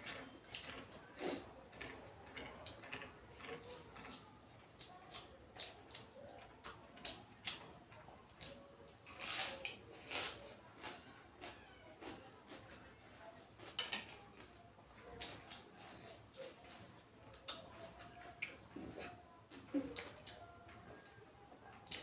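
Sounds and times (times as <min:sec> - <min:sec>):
wet chewing and lip-smacking: 0:04.8 - 0:07.6, 0:17.4 - 0:20.4.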